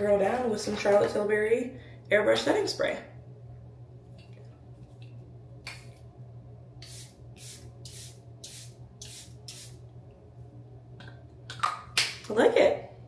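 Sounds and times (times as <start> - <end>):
spray bottle hissing: 6.8 - 9.8.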